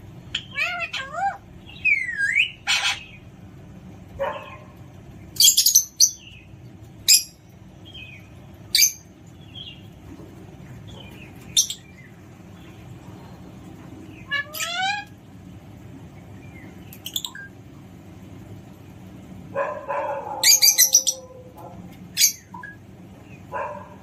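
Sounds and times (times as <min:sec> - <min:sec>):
parrot screeching and chirping: 0:00.3 - 0:03.2, 0:11.6 - 0:11.9, 0:14.1 - 0:15.2, 0:20.3 - 0:22.8.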